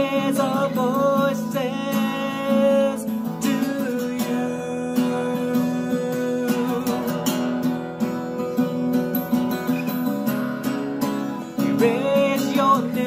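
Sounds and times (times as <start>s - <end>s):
man singing: 0.0s - 8.8s, 11.5s - 13.0s
acoustic guitar strumming: 0.0s - 13.0s.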